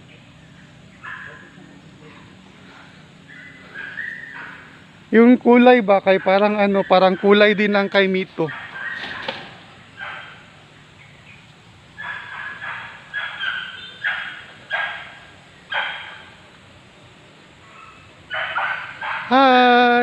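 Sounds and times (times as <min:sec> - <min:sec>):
animal barking calls: 0:00.0 - 0:05.2, 0:06.0 - 0:16.5, 0:17.5 - 0:20.0.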